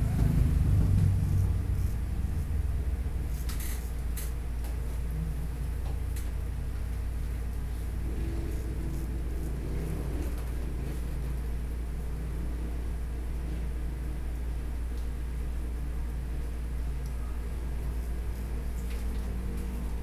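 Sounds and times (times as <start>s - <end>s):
low rumble: 0.0s - 3.2s
razor scraping stubble: 3.2s - 4.4s.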